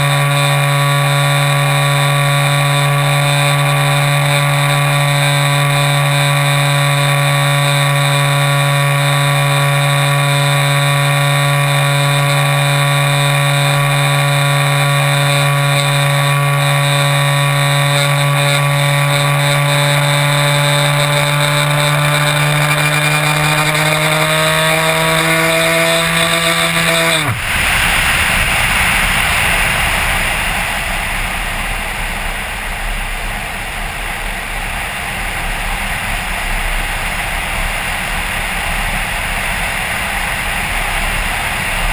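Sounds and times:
electric motor and propeller: 0.0s - 41.9s
wind rushing over gliding plane: 25.4s - 41.9s.

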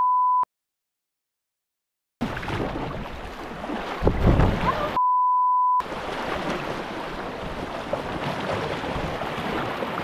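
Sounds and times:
creek water rushing: 5.8s - 10.0s.

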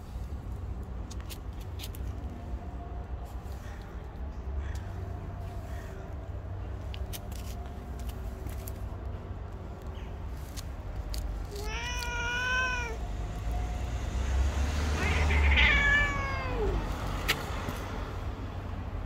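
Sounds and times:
cat meowing: 11.5s - 13.0s, 14.9s - 17.0s.

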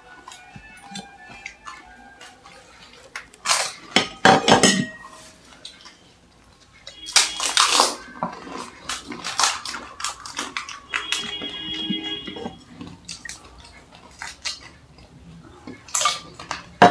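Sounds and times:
crisp shells cracking and crunching: 0.1s - 4.3s, 5.6s - 16.9s
clinks against pots and bowls: 0.2s - 6.0s, 15.6s - 16.9s.

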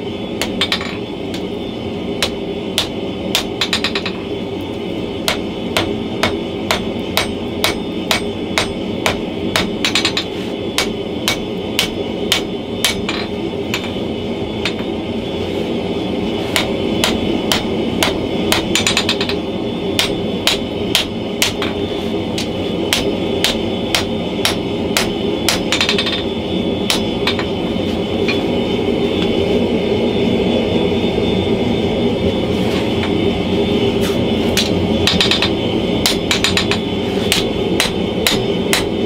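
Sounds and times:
hammer blows ringing on anvil: 0.4s - 1.0s, 2.2s - 4.2s, 5.3s - 13.9s, 16.6s - 19.4s, 20.0s - 21.8s, 22.4s - 26.3s, 26.9s - 27.5s, 34.6s - 38.9s.

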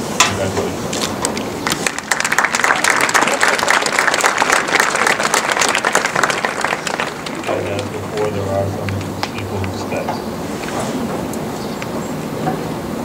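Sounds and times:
audience applauding: 1.4s - 10.1s.

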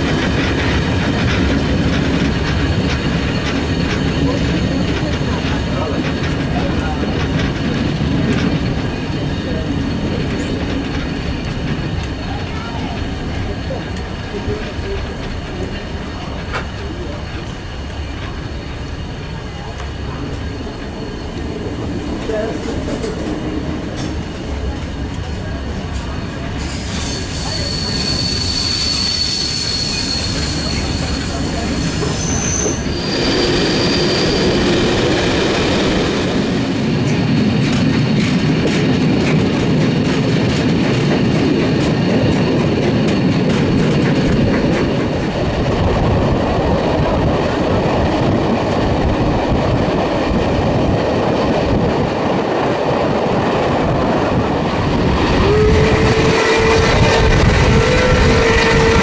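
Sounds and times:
train rumbling: 0.0s - 59.0s
train wheels squealing: 18.4s - 23.4s, 26.5s - 36.5s.

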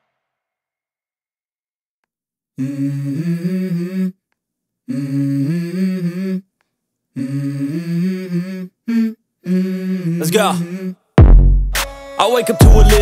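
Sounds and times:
hummed vocal melody: 2.6s - 11.1s, 12.0s - 13.0s.

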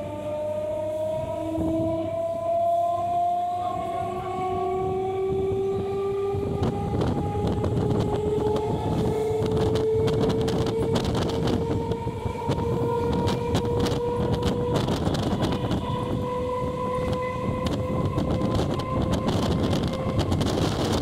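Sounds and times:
traction motors whining: 0.0s - 21.0s
train running gear rumble: 0.0s - 21.0s.

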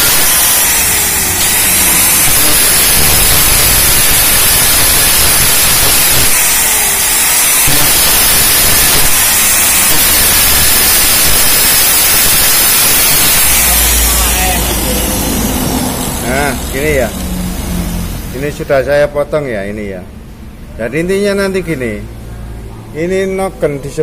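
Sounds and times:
angle grinder cutting metal: 0.0s - 18.6s.

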